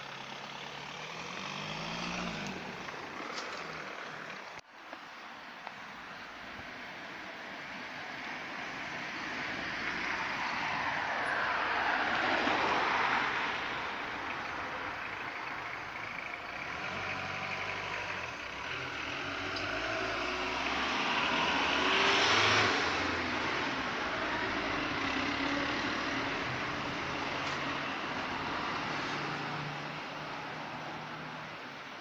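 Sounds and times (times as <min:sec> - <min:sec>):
fire truck driving past: 0:07.6 - 0:31.9.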